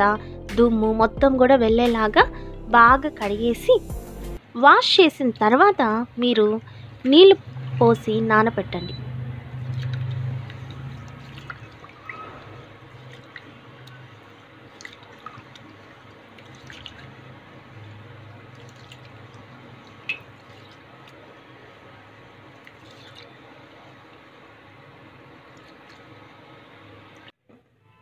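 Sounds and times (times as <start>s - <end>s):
grains sloshing in water: 9.5s - 21.3s, 22.4s - 23.5s.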